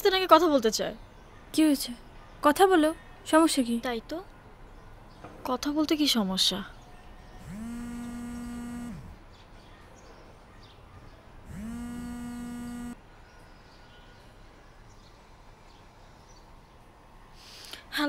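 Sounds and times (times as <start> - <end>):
phone vibrating buzzes: 7.4 - 9.2, 11.5 - 13.0.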